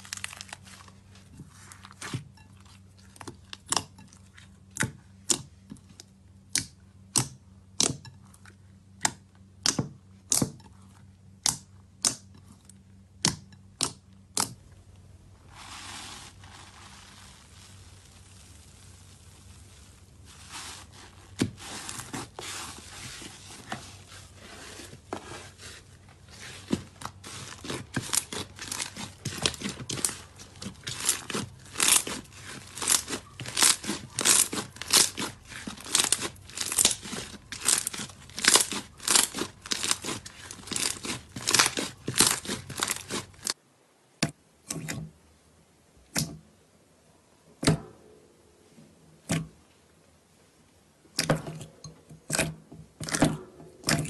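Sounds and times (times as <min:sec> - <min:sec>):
slime crackling and popping: 0:00.0 - 0:01.0, 0:16.2 - 0:22.3, 0:26.7 - 0:43.6
soft hiss of slime stretched: 0:15.4 - 0:24.5.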